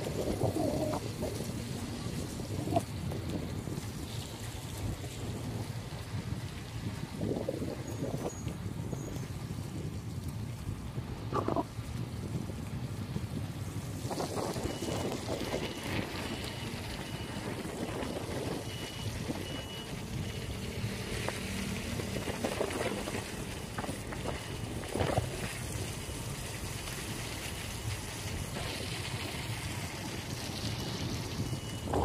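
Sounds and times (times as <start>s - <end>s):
wet street rumble and hiss: 0.0s - 32.0s
wind buffeting microphone: 0.0s - 32.0s.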